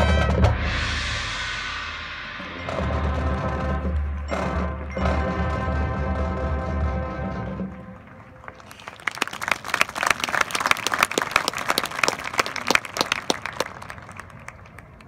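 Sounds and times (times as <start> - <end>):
audience applause: 8.2 - 15.0.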